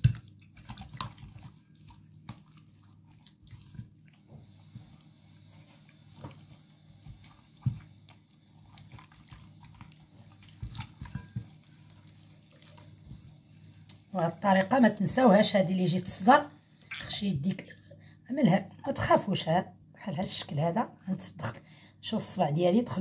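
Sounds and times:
gloved hands squelching marinade: 0:00.0 - 0:15.7.

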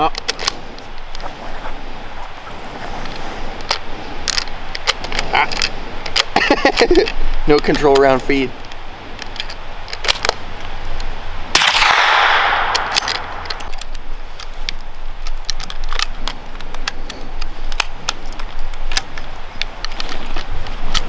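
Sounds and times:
rifle bolt clicks: 0:11.0 - 0:14.0
metallic gun handling clicks: 0:11.0 - 0:21.0
suppressed rifle shot with echo: 0:11.5 - 0:13.6.

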